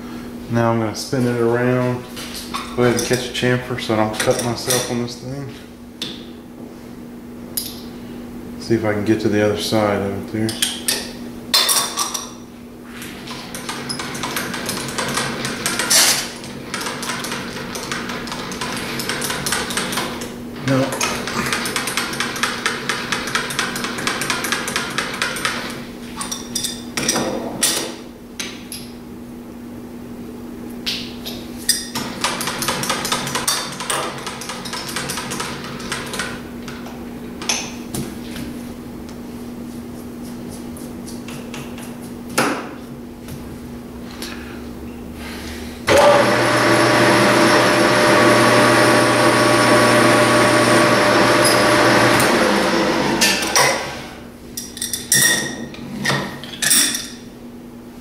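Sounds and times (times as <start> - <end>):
lathe humming: 45.9 - 53.2.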